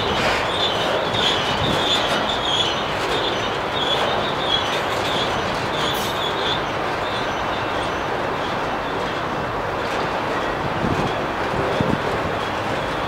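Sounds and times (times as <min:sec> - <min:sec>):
high wheel squeal: 0:00.0 - 0:08.1
steel wheels rumbling on rail: 0:00.0 - 0:13.0.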